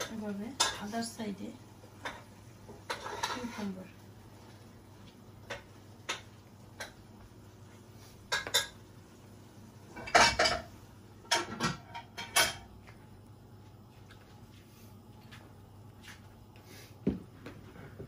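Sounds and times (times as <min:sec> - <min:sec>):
dishware and utensils clinking: 0:10.0 - 0:12.7.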